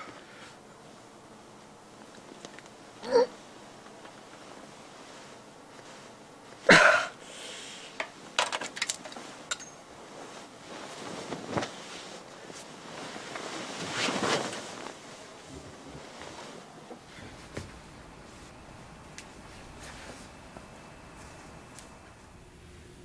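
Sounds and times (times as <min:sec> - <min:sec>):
rustling: 0:08.1 - 0:22.3.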